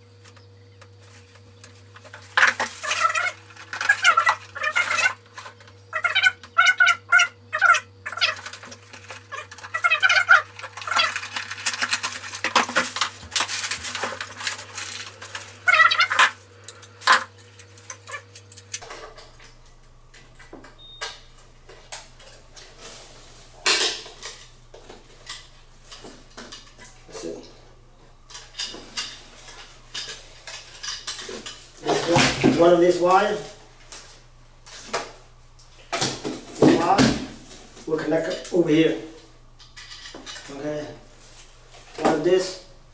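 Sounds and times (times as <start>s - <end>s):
metal parts clinking and rattling: 8.1s - 19.5s, 25.2s - 27.0s, 28.3s - 32.2s, 39.6s - 40.6s.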